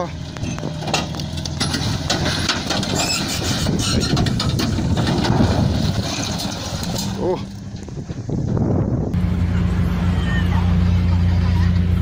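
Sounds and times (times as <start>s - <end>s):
rumbling crunching clatter of steel: 0.0s - 9.3s
diesel truck engine running: 0.0s - 12.0s.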